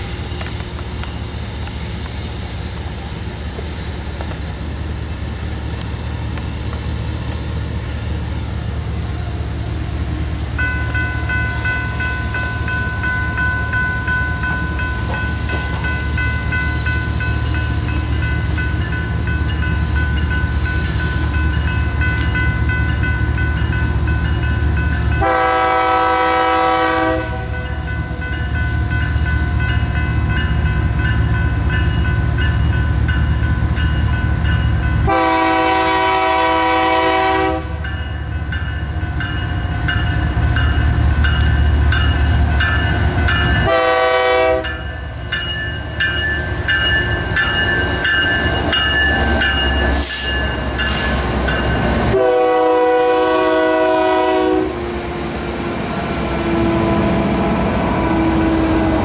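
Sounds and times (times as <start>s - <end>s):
diesel locomotive engines rumbling: 0.0s - 59.0s
train horn blasts: 25.1s - 27.7s, 35.0s - 37.8s, 43.6s - 44.8s, 52.1s - 54.8s.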